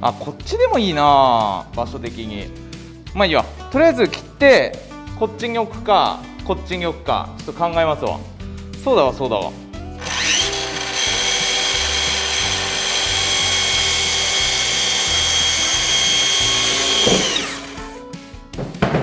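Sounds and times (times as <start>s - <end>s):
miter saw motor whining: 10.0s - 18.0s
saw blade cutting wooden board: 10.0s - 18.0s.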